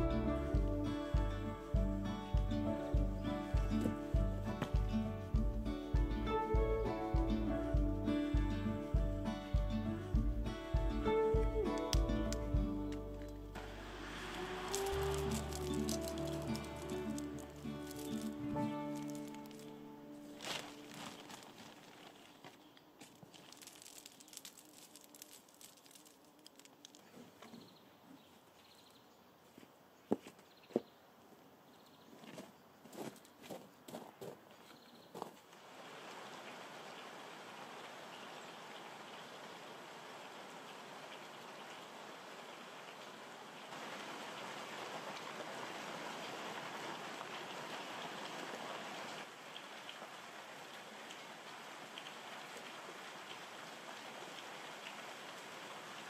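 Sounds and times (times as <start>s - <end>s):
steady rain hiss: 0.0s - 27.3s, 35.4s - 56.0s
raindrop ticks: 4.6s - 13.4s, 14.7s - 19.7s, 49.2s - 55.4s
light ticks from hands working soil: 11.0s - 13.4s, 14.7s - 19.8s, 20.4s - 27.6s
faint rustling: 14.7s - 28.2s.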